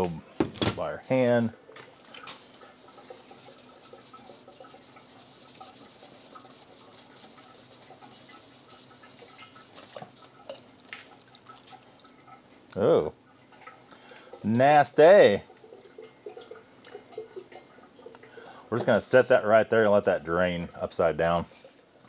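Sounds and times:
oil dripping: 0:01.7 - 0:18.6.

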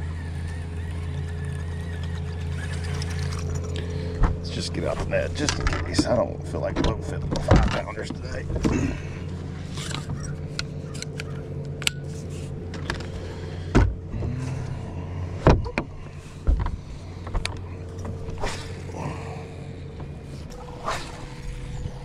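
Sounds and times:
electric trolling motor hum: 0:00.0 - 0:22.0.

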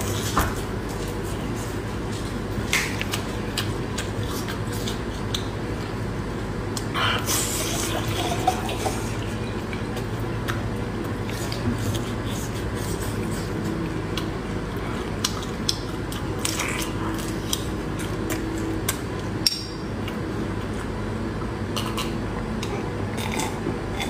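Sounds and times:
steady low hum: 0:00.0 - 0:24.0
wet chewing: 0:02.1 - 0:05.9, 0:09.5 - 0:19.4.

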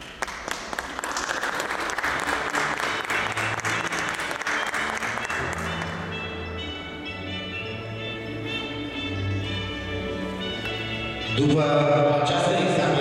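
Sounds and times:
audience applauding: 0:00.0 - 0:06.5
music playing: 0:01.4 - 0:13.0.

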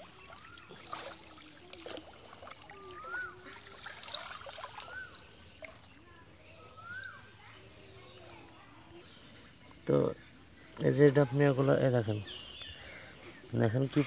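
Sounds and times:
net sweeping through water: 0:00.0 - 0:05.7
water splashing: 0:00.0 - 0:06.0
water trickling: 0:00.0 - 0:06.2.

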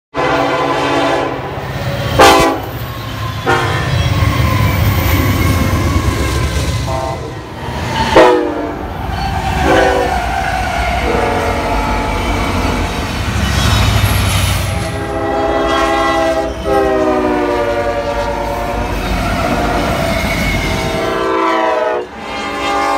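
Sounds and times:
train air horn blasts: 0:00.1 - 0:02.8, 0:03.4 - 0:04.2, 0:06.2 - 0:08.8, 0:09.5 - 0:12.8, 0:14.6 - 0:20.0, 0:20.7 - 0:22.9.

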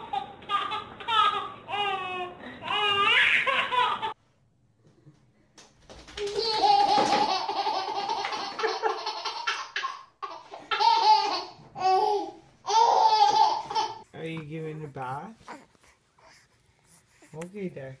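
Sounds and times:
baby laughing: 0:00.0 - 0:04.2, 0:06.2 - 0:14.0.

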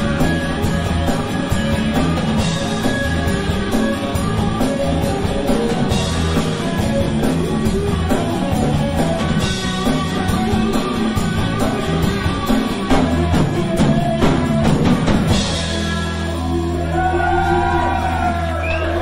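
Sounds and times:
live pop-rock band playing: 0:00.0 - 0:19.0.

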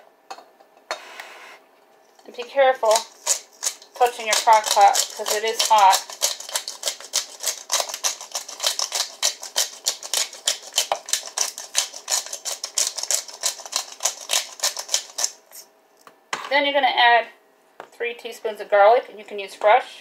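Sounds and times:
pepper grinder crackling clicks: 0:02.9 - 0:15.4.

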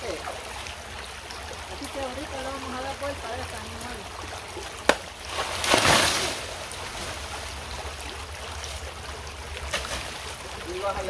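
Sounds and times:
creek trickling: 0:00.0 - 0:11.0
banana plant crashing down: 0:04.9 - 0:06.5.

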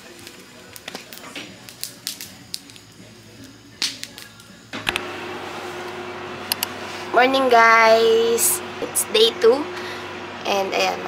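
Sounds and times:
bonfire crackling and popping: 0:00.0 - 0:05.1
room hum: 0:00.0 - 0:11.0.

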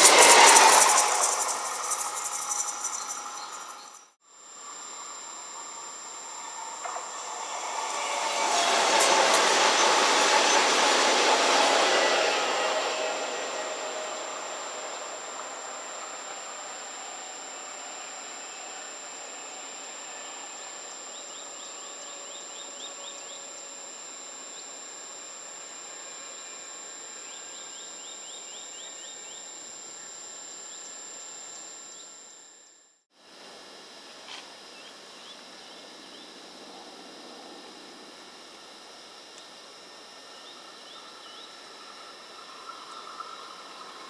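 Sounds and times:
train rolling away: 0:00.0 - 0:03.9, 0:06.3 - 0:17.0
bird chirping: 0:01.0 - 0:04.1.

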